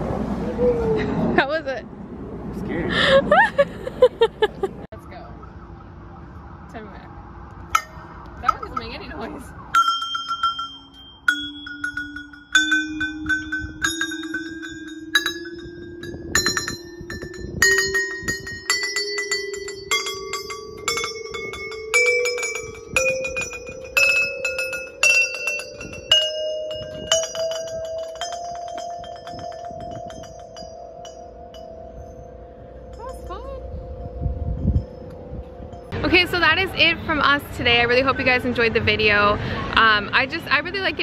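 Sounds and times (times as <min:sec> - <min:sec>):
chime poles ringing rising scale: 0:07.7 - 0:38.3.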